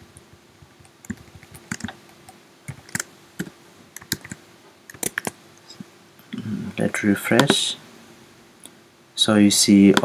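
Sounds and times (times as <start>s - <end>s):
faint steady hum: 0.0s - 10.0s
keyboard keys tapping: 0.2s - 5.4s.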